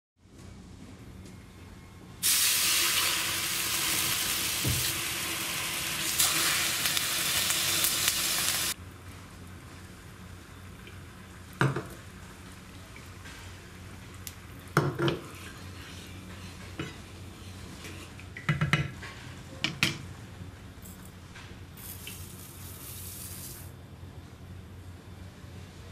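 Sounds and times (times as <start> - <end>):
water hissing in hot pan: 2.2 - 8.8.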